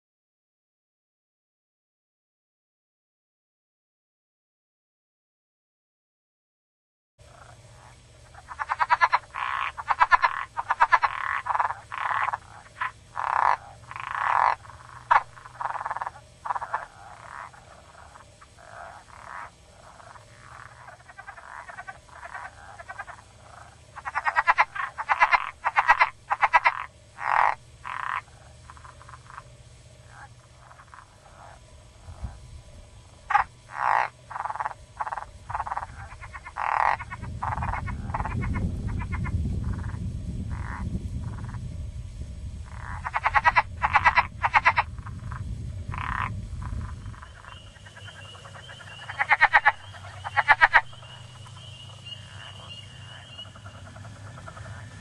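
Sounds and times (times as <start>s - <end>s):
frogs calling: 7.2s - 55.0s
low rumble: 7.2s - 55.0s.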